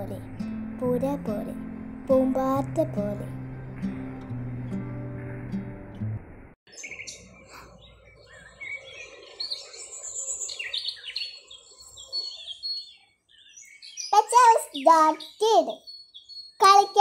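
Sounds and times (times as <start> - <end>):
music: 0.0 - 6.6
soft outdoor background: 0.0 - 17.0
birds chirping: 6.7 - 17.0.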